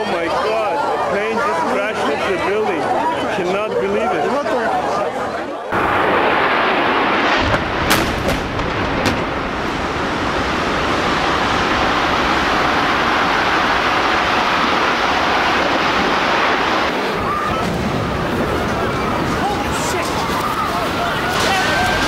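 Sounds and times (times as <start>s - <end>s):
jet roar and explosion: 5.7s - 22.0s
sharp cracks: 5.8s - 18.4s.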